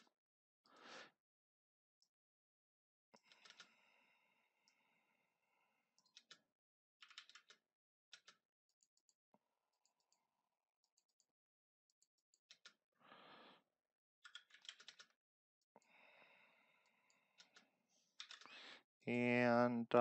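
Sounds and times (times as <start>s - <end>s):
keyboard typing: 3.2s - 3.7s, 6.0s - 6.4s, 7.0s - 9.1s, 11.9s - 12.8s, 14.2s - 15.2s, 17.4s - 17.6s, 18.2s - 18.6s.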